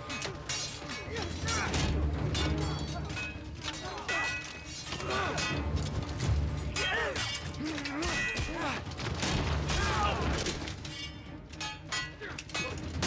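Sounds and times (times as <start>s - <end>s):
fighters yelling and grunting: 0.0s - 2.1s, 2.8s - 5.7s, 6.7s - 9.0s, 9.6s - 10.6s
steel swords clashing: 0.0s - 6.0s, 6.6s - 8.8s, 9.7s - 13.0s
orchestral film score: 0.0s - 13.0s.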